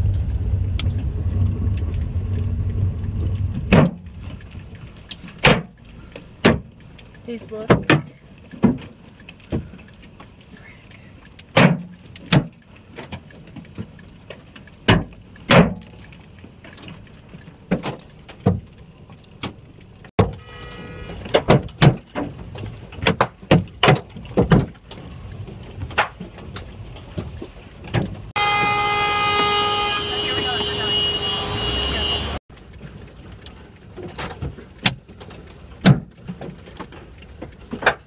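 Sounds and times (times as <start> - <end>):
car horn sounding: 20.2 - 21.4, 28.4 - 32.4.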